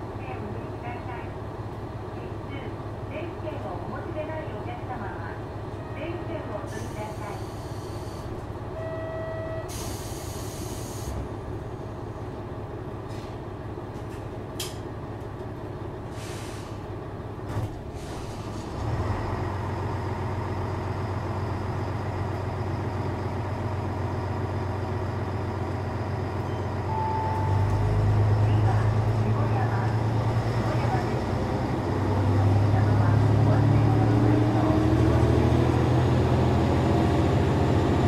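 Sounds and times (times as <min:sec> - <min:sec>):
diesel railcar idling: 0:00.0 - 0:38.0
brake air hiss: 0:09.7 - 0:11.2, 0:16.1 - 0:16.9
brief beeps: 0:26.4 - 0:27.8.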